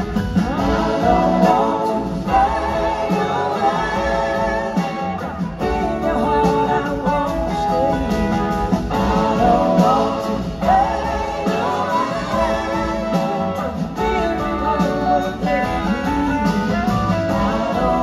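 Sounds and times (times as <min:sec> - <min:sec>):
blues-rock band playing: 0:00.0 - 0:18.0.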